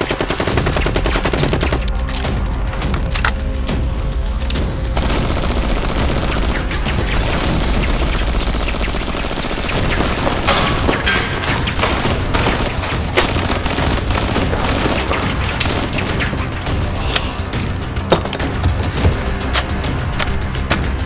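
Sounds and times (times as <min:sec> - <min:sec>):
automatic gunfire: 0:00.0 - 0:01.9, 0:05.0 - 0:16.6
background music: 0:00.0 - 0:21.0.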